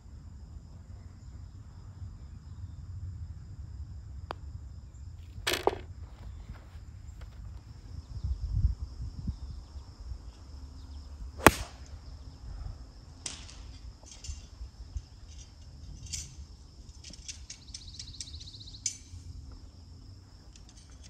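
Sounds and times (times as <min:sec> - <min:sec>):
golf club striking ball: 0:05.5 - 0:06.3, 0:11.4 - 0:11.9.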